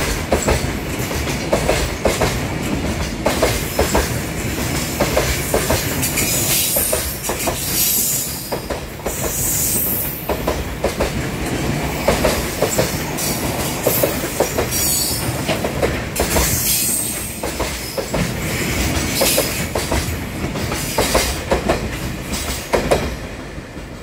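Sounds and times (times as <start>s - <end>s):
train wheels clattering over rail joints: 0.0s - 23.9s
train rumble: 0.0s - 24.0s.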